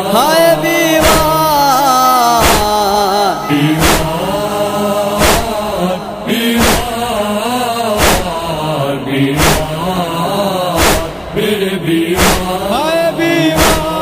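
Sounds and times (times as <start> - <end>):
wordless chanted vocals: 0.0 - 14.0
chest-beating strikes: 1.0 - 1.5, 2.4 - 4.4, 5.1 - 5.8, 13.6 - 14.0.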